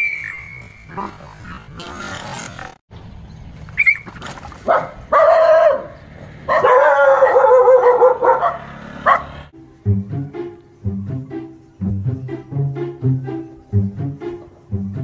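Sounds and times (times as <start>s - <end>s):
dog yelping: 3.8s - 5.9s, 6.5s - 9.3s.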